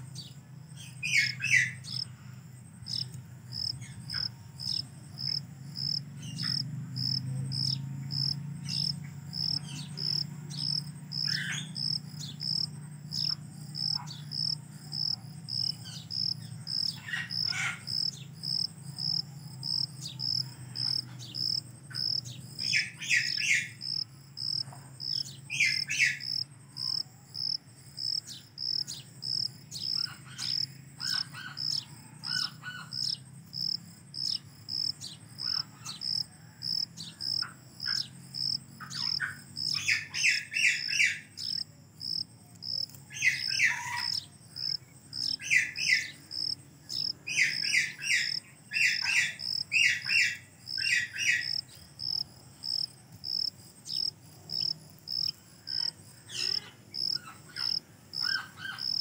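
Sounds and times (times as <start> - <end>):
birds chirping: 0.0 - 36.3, 37.0 - 59.0
insect chirping: 0.0 - 59.0.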